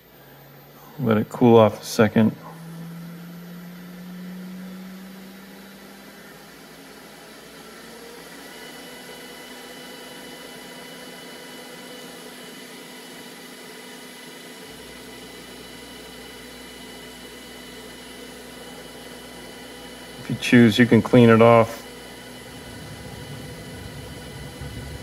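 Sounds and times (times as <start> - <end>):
steady fan hiss: 0.0 - 13.2, 14.5 - 25.0.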